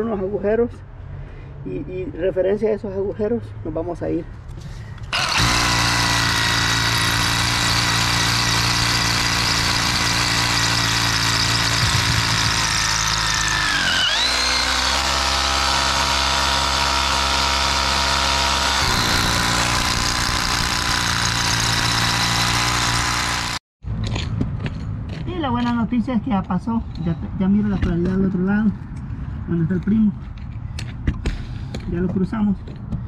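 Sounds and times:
rotary hammer drilling concrete: 5.1 - 23.6.

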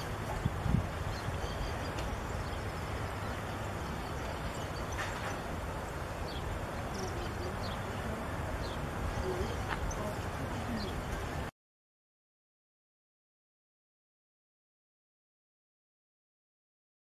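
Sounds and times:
wind rumble on microphone: 0.0 - 11.5.

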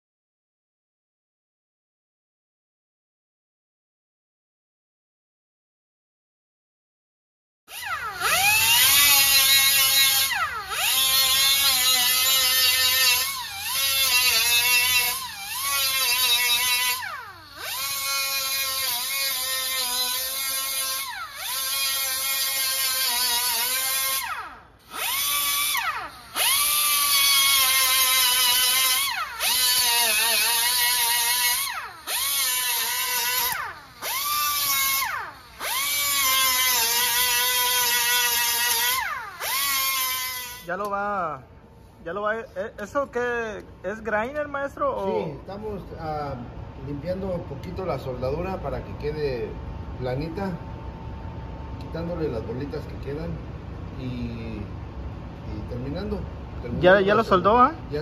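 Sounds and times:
pneumatic grinder grinding metal: 7.7 - 41.0.

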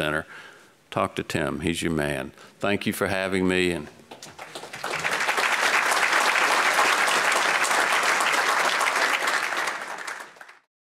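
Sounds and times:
audience applauding: 4.1 - 10.7.

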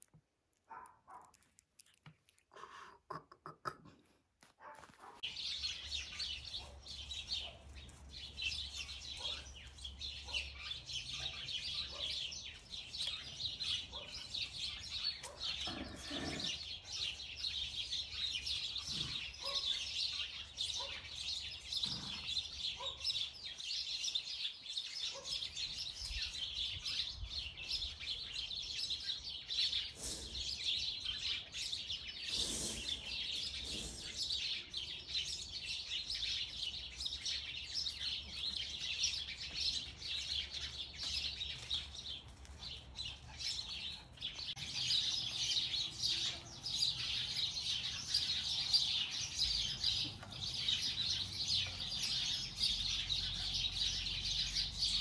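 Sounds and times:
puppy mouthing clicks: 0.0 - 4.9
small birds chirping: 0.0 - 55.0.

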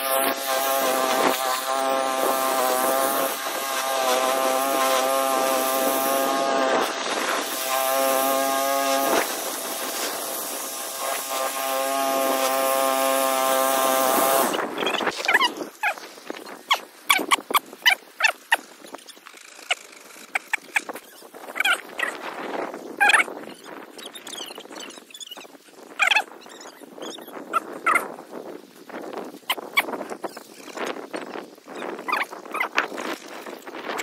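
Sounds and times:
lawn mower engine cutting grass: 0.0 - 25.2.

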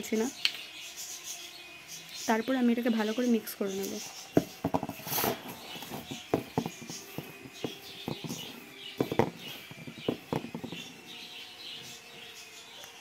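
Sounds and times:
fingers scraping a steel bowl: 4.4 - 10.9.

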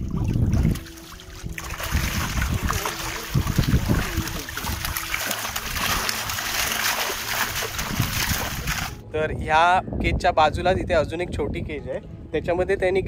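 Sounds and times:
fish thrashing and splashing: 0.0 - 9.0.

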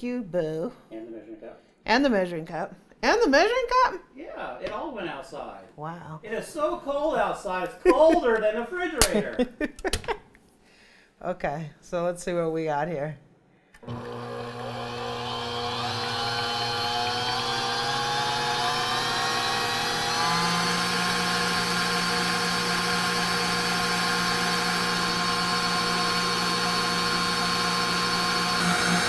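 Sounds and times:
stand mixer whisking cream: 13.8 - 29.0.

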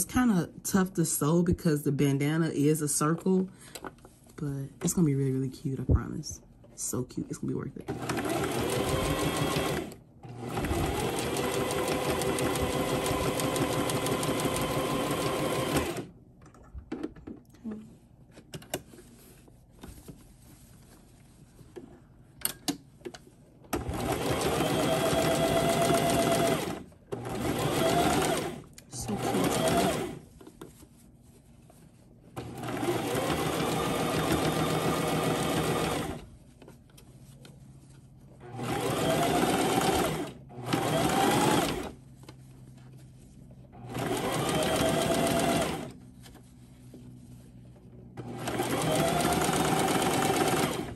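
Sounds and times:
electric sewing machine sewing: 7.9 - 16.1, 23.8 - 30.2, 32.4 - 36.2, 38.5 - 42.0, 43.8 - 46.0, 48.2 - 50.9.

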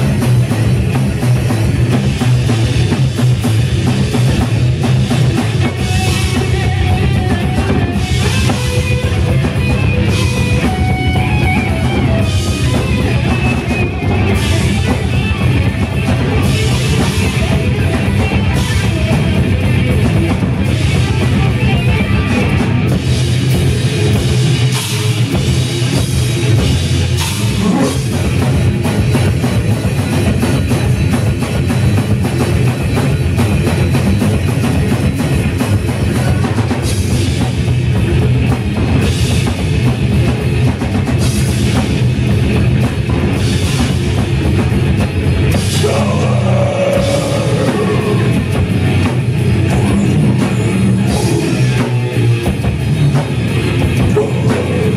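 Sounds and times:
distorted electric guitars: 0.0 - 54.9
fast drums on a full kit: 0.0 - 54.9.

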